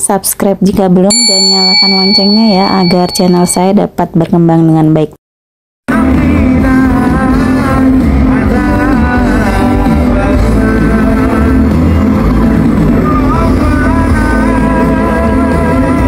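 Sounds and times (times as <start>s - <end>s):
person singing: 5.9s - 11.9s, 12.9s - 16.0s
pop band playing live: 5.9s - 16.0s.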